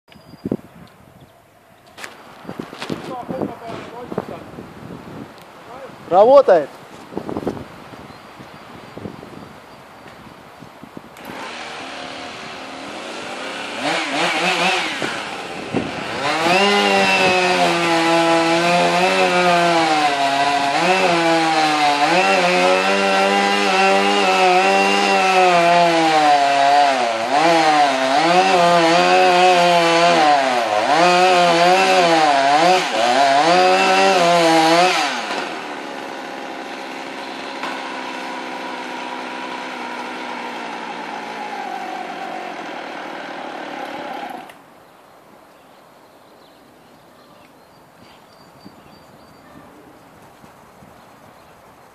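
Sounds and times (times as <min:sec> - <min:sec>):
chainsaw cutting wood: 0:11.2 - 0:44.6
chainsaw idling: 0:11.2 - 0:44.6.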